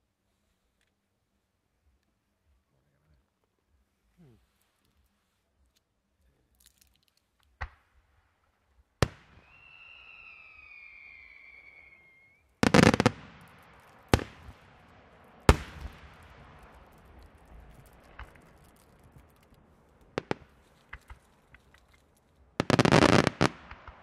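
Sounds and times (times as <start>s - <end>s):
firework bangs: 9.0s - 24.0s
firework whistle: 9.3s - 13.4s.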